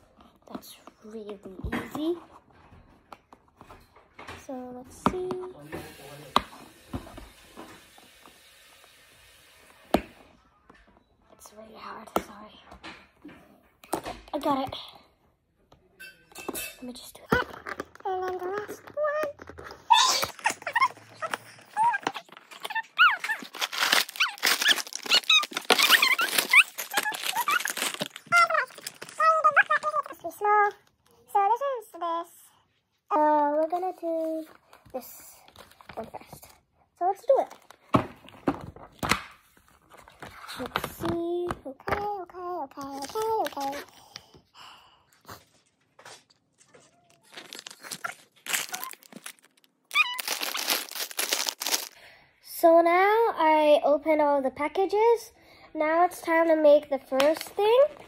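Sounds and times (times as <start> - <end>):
cardboard and plastic crinkling: 17.2 - 30.6, 42.7 - 44.2, 45.4 - 52.0.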